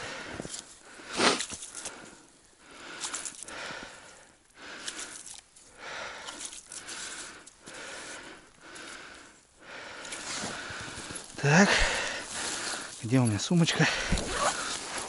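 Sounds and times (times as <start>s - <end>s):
person breathing heavily: 0.0s - 13.1s, 13.7s - 15.0s.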